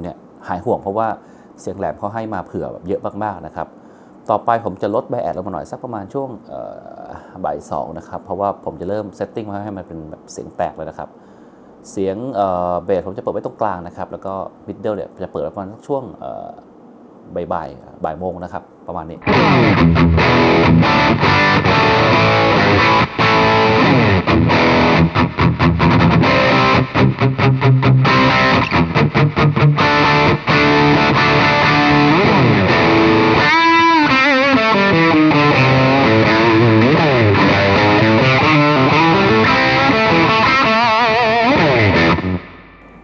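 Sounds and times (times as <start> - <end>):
distorted electric guitar: 19.2 - 43.0.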